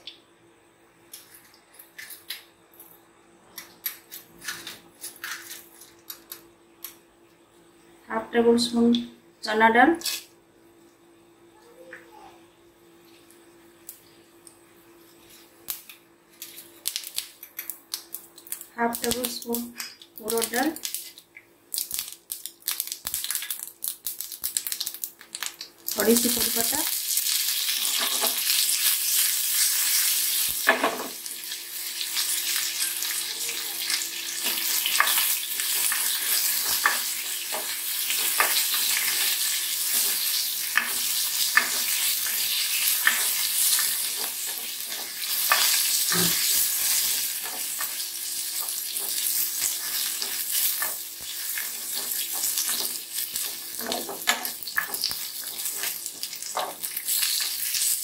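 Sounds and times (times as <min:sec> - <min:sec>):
spices sizzling in hot oil: 0:16.4 - 0:58.0.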